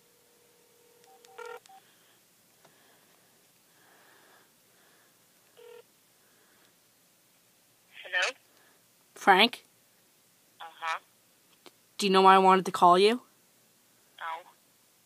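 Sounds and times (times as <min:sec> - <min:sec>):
phone ringing tone: 0:00.0 - 0:01.8, 0:05.6 - 0:05.9.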